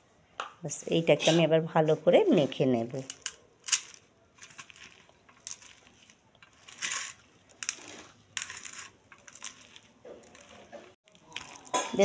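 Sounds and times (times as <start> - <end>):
hand kneading batter: 4.3 - 12.0.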